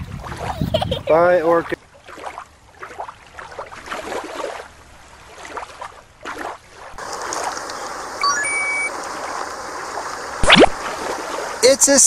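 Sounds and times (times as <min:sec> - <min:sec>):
water splashing: 0:00.0 - 0:12.0
stream rushing: 0:06.7 - 0:12.0
rising electronic chime: 0:08.2 - 0:08.9.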